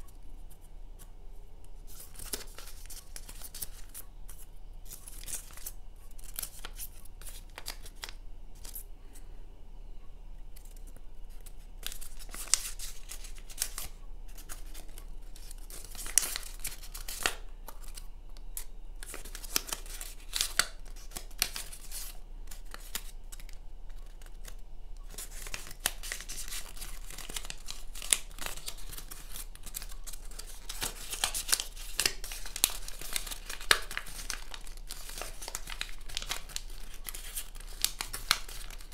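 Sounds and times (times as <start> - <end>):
paper rustling and crinkling: 1.8 - 8.9, 10.6 - 38.9
sharp paper crackles: 1.9 - 8.8, 10.6 - 38.9.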